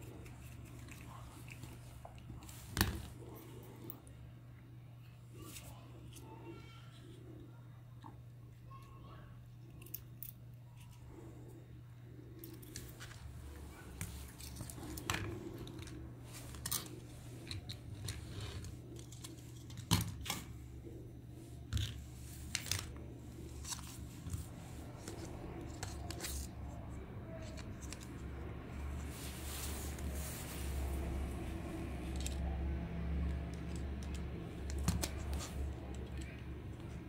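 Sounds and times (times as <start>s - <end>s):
low steady hum: 0.0s - 37.0s
plastic toy parts clicking: 33.4s - 36.9s.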